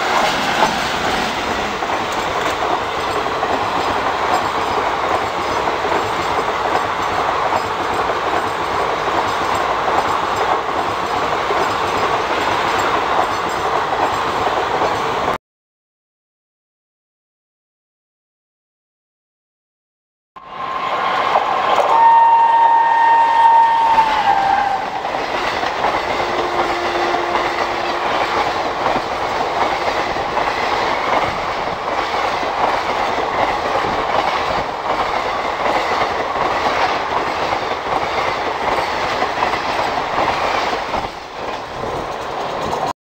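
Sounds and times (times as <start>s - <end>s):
wheels clacking over rail joints: 0.0s - 15.2s, 24.2s - 42.9s
train coaches rushing past: 0.0s - 15.4s, 20.4s - 42.9s
train horn: 20.4s - 25.3s, 25.9s - 28.6s.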